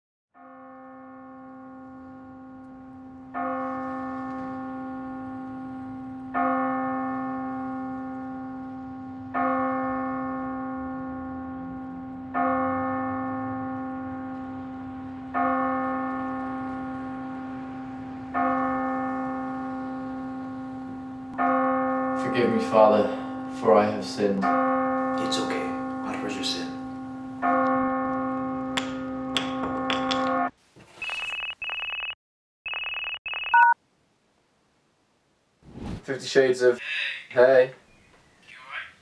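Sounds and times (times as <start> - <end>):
church bell tolling: 0.4 - 30.5.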